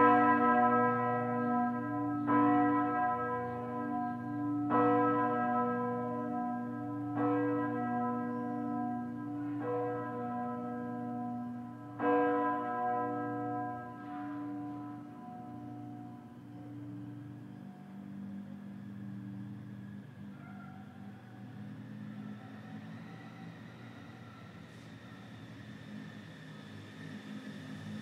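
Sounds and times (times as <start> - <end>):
large church bell ringing: 0.0 - 18.4.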